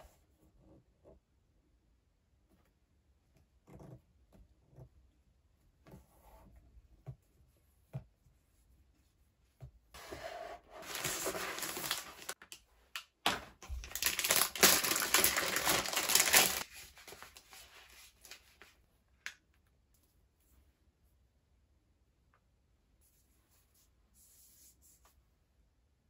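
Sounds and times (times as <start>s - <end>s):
plastic bags crinkling: 10.8s - 12.6s, 13.3s - 17.5s.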